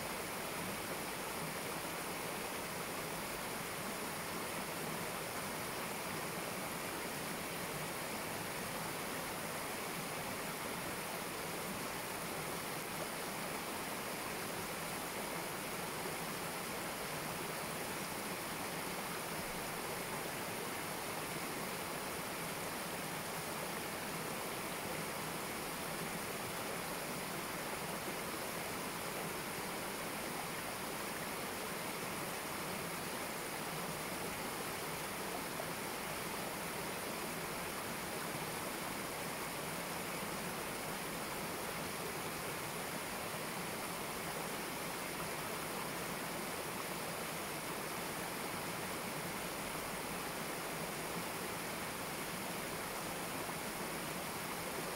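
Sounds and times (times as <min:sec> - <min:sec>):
stream water rushing over rocks: 0:00.0 - 0:54.9.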